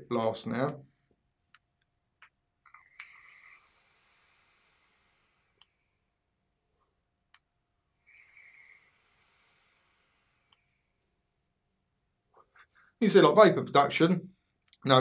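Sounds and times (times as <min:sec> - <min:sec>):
soft clicks: 0:01.4 - 0:03.2, 0:07.3 - 0:07.5
vape draw hiss with crackle: 0:02.7 - 0:05.8, 0:08.0 - 0:10.7.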